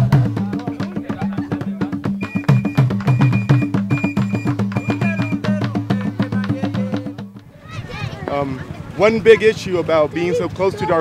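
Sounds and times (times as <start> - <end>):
music with percussion beat: 0.0 - 7.5
short high tone: 2.2 - 5.5.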